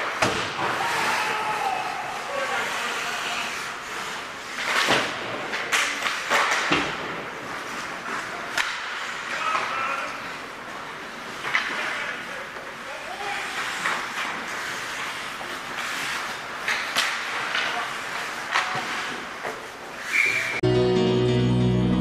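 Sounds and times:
skates scraping on ice: 0:00.0 - 0:20.6
players shouting: 0:00.6 - 0:03.7.

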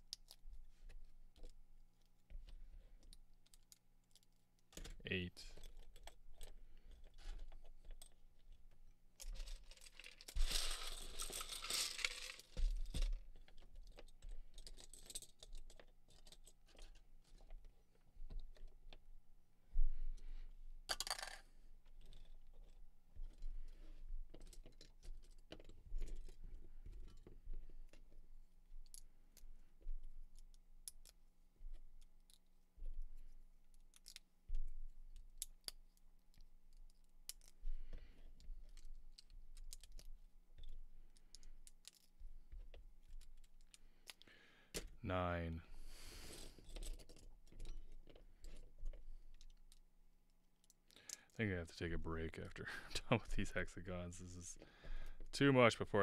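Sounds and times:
rattle of plastic pieces: 0:05.6 - 0:17.7, 0:20.9 - 0:28.2
plastic bricks clicking and clattering: 0:38.6 - 0:42.1.

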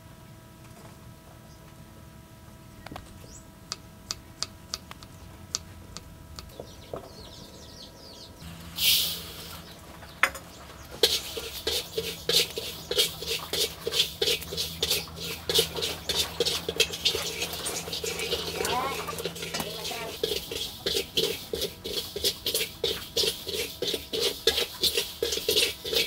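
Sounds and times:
dry rice grains poured into wok: 0:08.7 - 0:09.6
spatula scraping rice in wok: 0:10.8 - 0:26.0.

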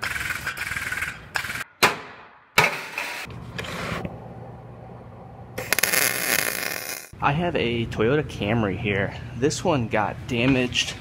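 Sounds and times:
low steady hum: 0:03.3 - 0:05.7.

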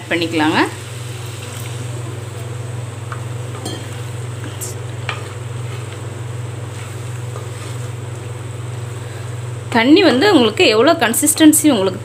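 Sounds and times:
light sizzle: 0:00.0 - 0:12.0
steady low hum: 0:00.0 - 0:12.0.

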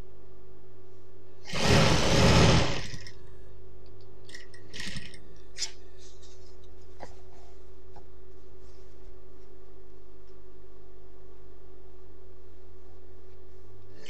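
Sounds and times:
sewing machine stitching: 0:01.4 - 0:03.1, 0:04.7 - 0:05.2.

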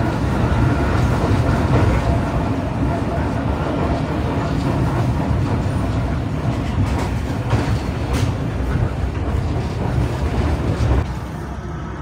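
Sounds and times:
train wheel clacks: 0:00.0 - 0:11.2
train wheels rumbling on rails: 0:00.0 - 0:12.0.

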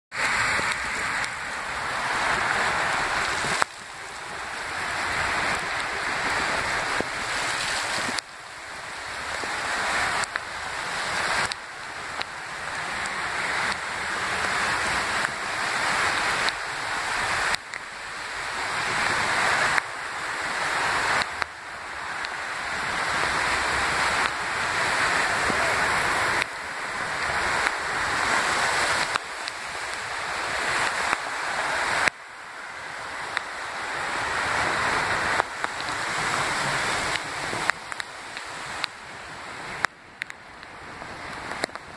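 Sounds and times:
cars driving through floodwater: 0:00.1 - 0:41.9
heavy rain pouring: 0:00.1 - 0:41.9.

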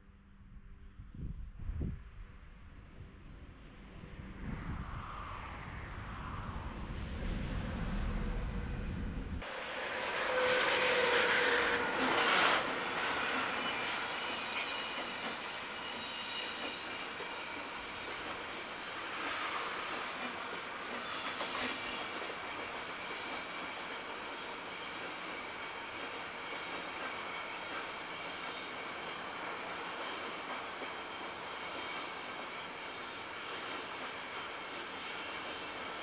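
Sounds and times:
train wheels rumbling on rails: 0:07.4 - 0:36.0
high wheel squeals: 0:09.8 - 0:18.0.

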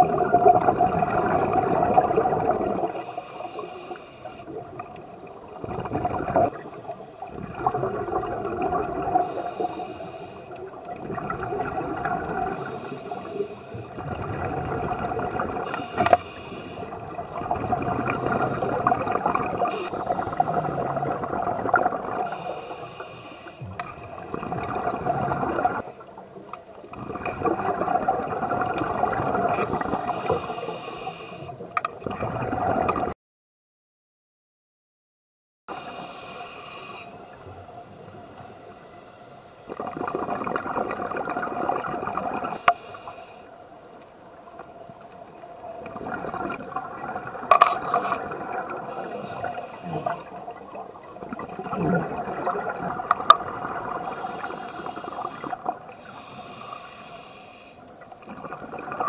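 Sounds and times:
underwater bubbling and gurgling: 0:00.0 - 0:33.2, 0:35.7 - 0:59.0.

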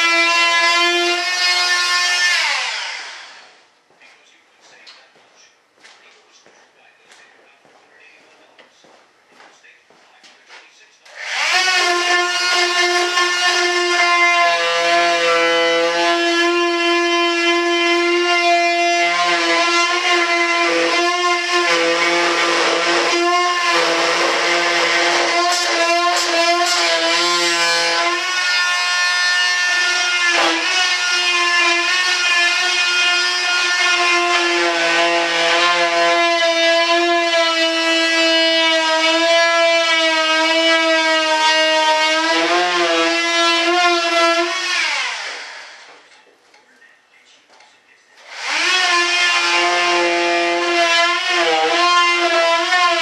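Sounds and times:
rotary cutting tool whining: 0:00.0 - 0:03.5, 0:11.1 - 0:46.0, 0:48.2 - 0:53.0.

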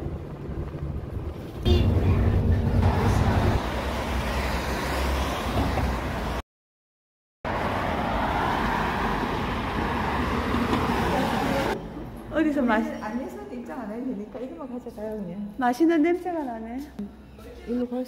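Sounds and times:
bus engine and road rumble: 0:00.0 - 0:06.4, 0:07.5 - 0:12.4.

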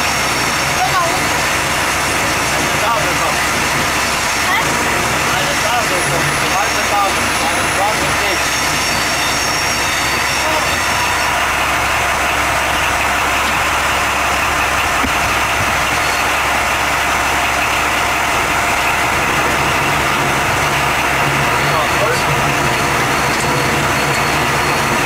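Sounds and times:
train engine hum: 0:00.0 - 0:25.0
train running noise: 0:00.0 - 0:25.0.

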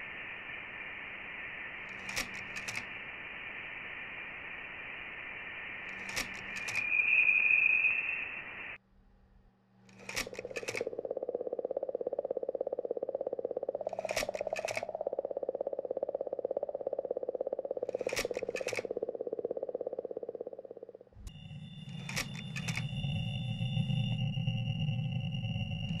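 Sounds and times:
hiss with high steady tone: 0:00.0 - 0:08.8, 0:10.1 - 0:26.0
burst of clicks: 0:01.8 - 0:03.1, 0:05.7 - 0:07.9, 0:09.9 - 0:21.0
fast-pulsing electronic buzz: 0:10.0 - 0:26.0.

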